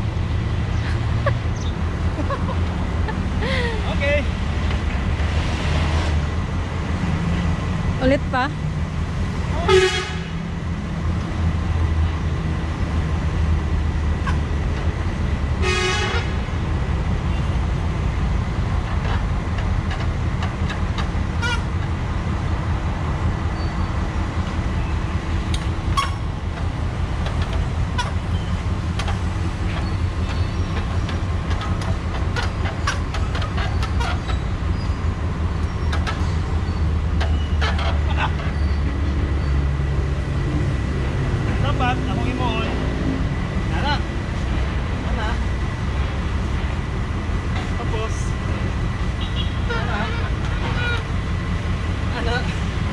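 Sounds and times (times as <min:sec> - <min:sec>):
street traffic rumble: 0:00.0 - 0:52.9
vehicle horn toot: 0:09.7 - 0:10.3, 0:15.6 - 0:16.4, 0:21.4 - 0:21.7, 0:49.2 - 0:51.1.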